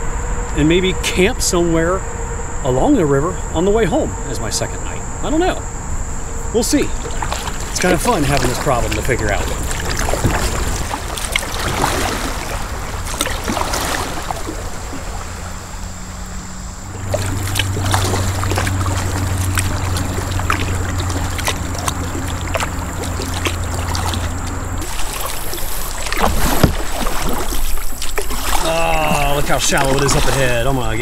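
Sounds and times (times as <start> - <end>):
steady low hum: 0.0 - 31.0
small splashes: 6.3 - 31.0
water dripping off paddle: 6.8 - 16.2, 16.9 - 31.0.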